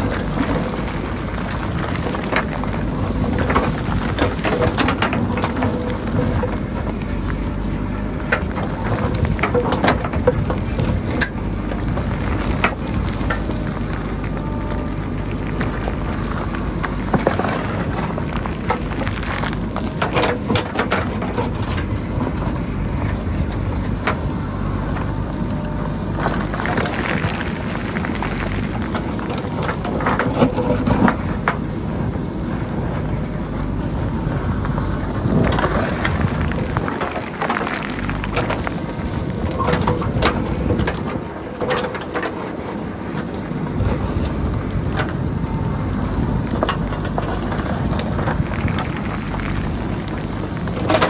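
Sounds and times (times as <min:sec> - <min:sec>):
diesel engine running under load: 0:00.0 - 0:51.0.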